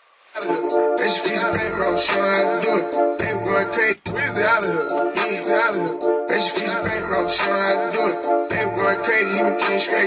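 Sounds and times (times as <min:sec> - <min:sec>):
rapping over hip hop beat: 0:00.4 - 0:10.0
deep bass from subwoofers: 0:01.1 - 0:05.0, 0:06.8 - 0:07.6, 0:08.5 - 0:09.4.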